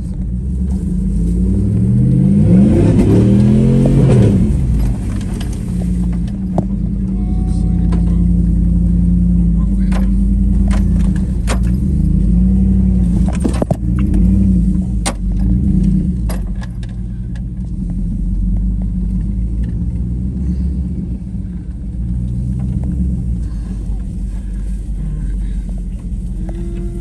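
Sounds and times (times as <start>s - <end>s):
truck engine running low speed: 0.0s - 27.0s
truck knocks and rattles: 2.8s - 7.1s, 9.4s - 20.2s.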